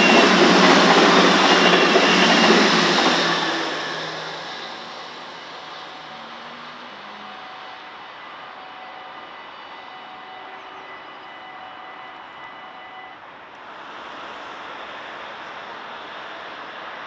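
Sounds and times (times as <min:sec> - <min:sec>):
level-crossing bells ringing: 0:00.0 - 0:13.2.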